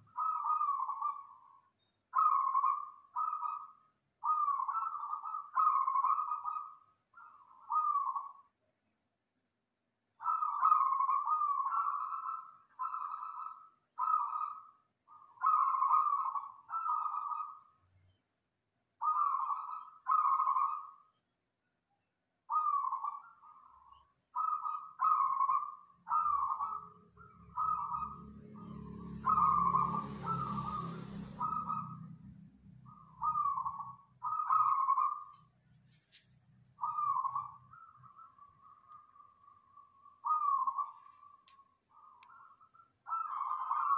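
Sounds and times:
dove cooing: 0.0s - 8.5s, 10.2s - 17.6s, 19.0s - 21.0s, 22.5s - 35.4s, 36.8s - 43.9s
low rumble with noise: 26.9s - 34.3s.

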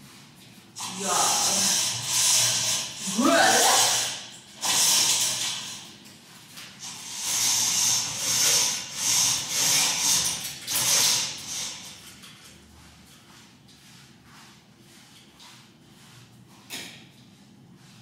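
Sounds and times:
rustling hissing strokes: 0.0s - 6.0s.

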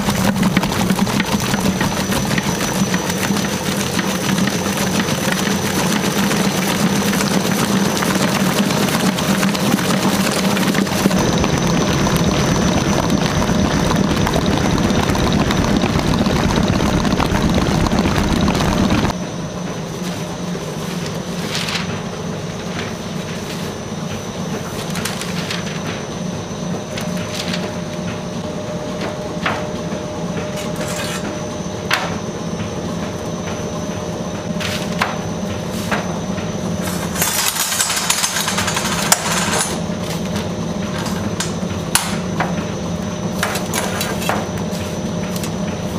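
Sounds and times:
stand mixer whirring: 0.0s - 19.2s, 23.9s - 45.9s
steady background hum: 0.0s - 45.9s
paper rustling: 21.0s - 22.0s, 24.7s - 26.0s.

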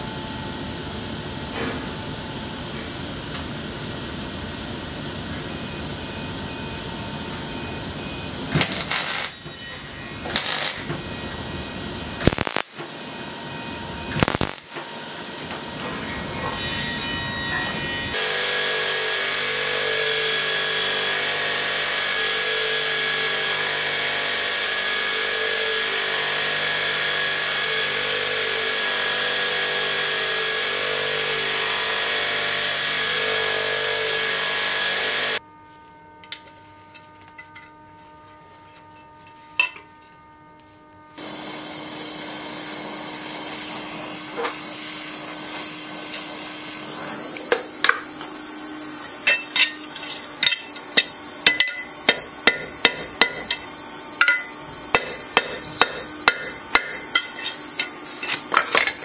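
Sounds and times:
belt grinder grinding: 8.5s - 9.5s, 10.3s - 10.8s, 12.2s - 12.7s, 14.1s - 14.7s, 47.4s - 59.0s.

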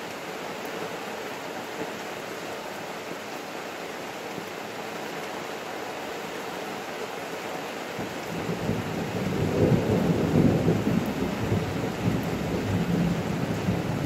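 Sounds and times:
steady rain: 0.0s - 14.0s.

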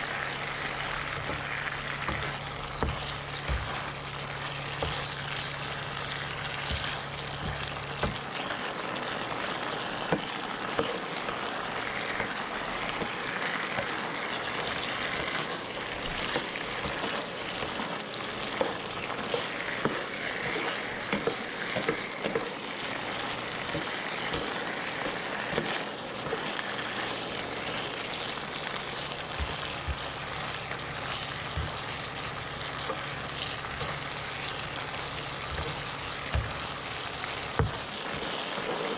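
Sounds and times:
spatula scraping a pan: 0.0s - 8.4s, 11.9s - 38.9s
fish sizzling in sauce: 0.0s - 38.9s.

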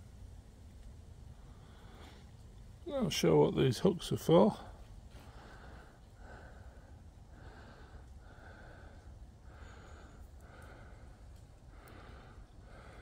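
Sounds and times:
person breathing softly: 1.3s - 2.4s, 4.6s - 13.0s.

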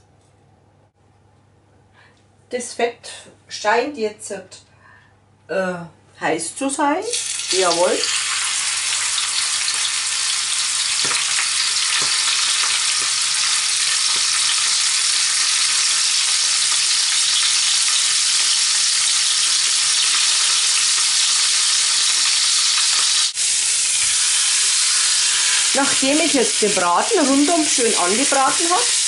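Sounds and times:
meat sizzling in oil: 7.1s - 29.0s.

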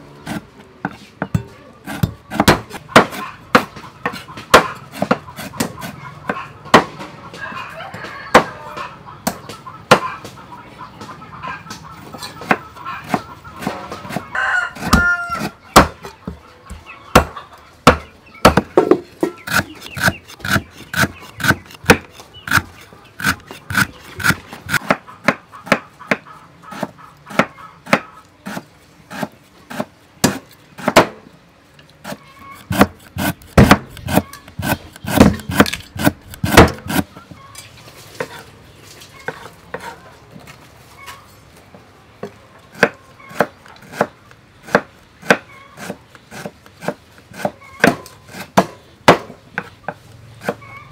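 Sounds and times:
cleaver chopping on wooden board: 0.3s - 5.9s, 17.2s - 31.2s, 32.0s - 37.1s, 44.7s - 49.3s.

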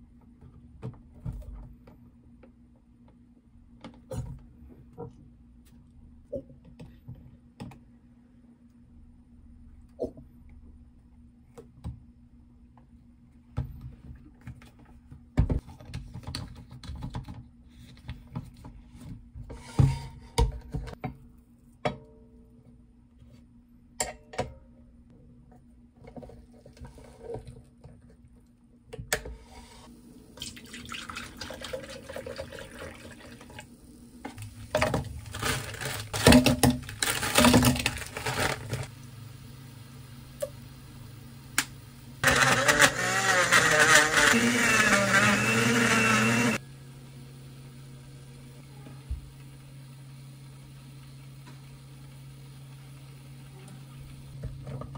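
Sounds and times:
liquid pouring into blender jug: 30.4s - 33.6s.

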